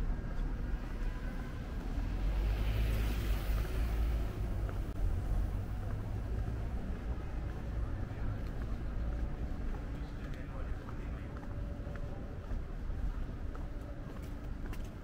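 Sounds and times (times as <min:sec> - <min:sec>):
low rumble of city traffic: 0:00.0 - 0:15.0
vehicle passing: 0:01.5 - 0:07.5.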